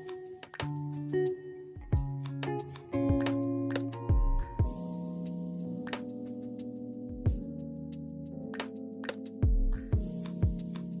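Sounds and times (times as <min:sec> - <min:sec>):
instrumental background music: 0:00.0 - 0:11.0
deep drum beats: 0:01.8 - 0:02.3, 0:03.0 - 0:03.3, 0:04.1 - 0:04.8, 0:07.1 - 0:07.5, 0:09.4 - 0:10.7.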